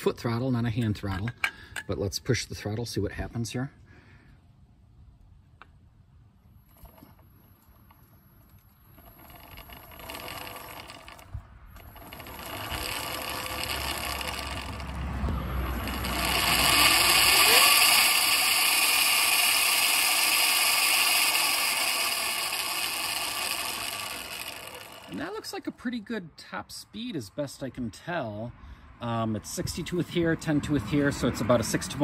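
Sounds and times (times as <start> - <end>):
electric motor whining: 8.9 - 25.5.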